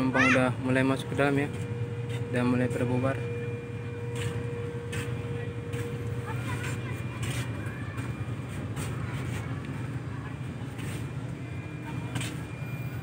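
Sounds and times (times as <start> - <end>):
air conditioning running: 0.0 - 13.0
bus engine idling: 0.0 - 13.0.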